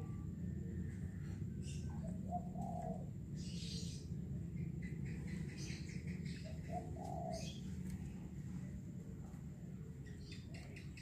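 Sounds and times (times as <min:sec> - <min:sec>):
low background rumble: 0:00.0 - 0:11.0
dove cooing: 0:01.2 - 0:03.8, 0:05.2 - 0:08.2.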